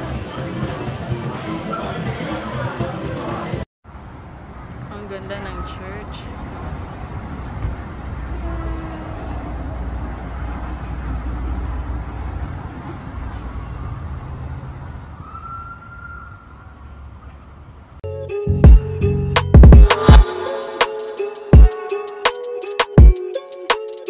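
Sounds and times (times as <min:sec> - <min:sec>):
rumble of cars on road: 0:03.8 - 0:18.0
music with strong beat: 0:18.4 - 0:24.0.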